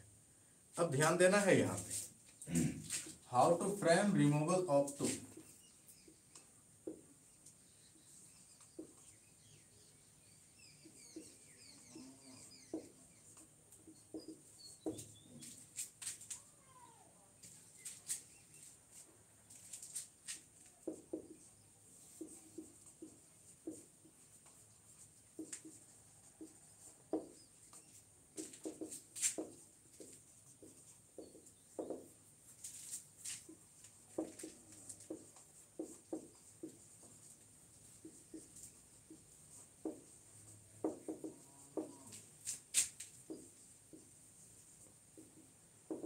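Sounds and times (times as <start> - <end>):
marker writing on whiteboard: 2.9 - 7.3, 8.1 - 9.3, 10.8 - 11.8, 12.5 - 16.3, 20.1 - 46.0.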